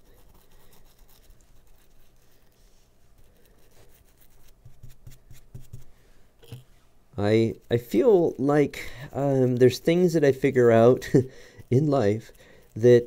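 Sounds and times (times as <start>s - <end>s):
small brush scrubbing circuit board: 0.0s - 5.9s, 9.2s - 13.0s.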